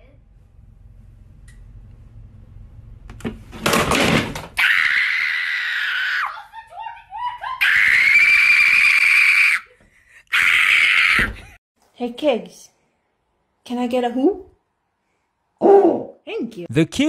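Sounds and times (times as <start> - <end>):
person shrieking: 10.3 - 11.5.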